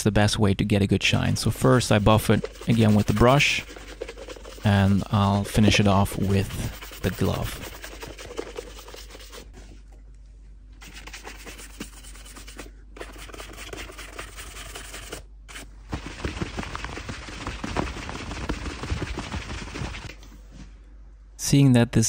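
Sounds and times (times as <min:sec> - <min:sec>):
shoe brush buffing leather: 0:01.6 - 0:09.5, 0:10.8 - 0:20.1.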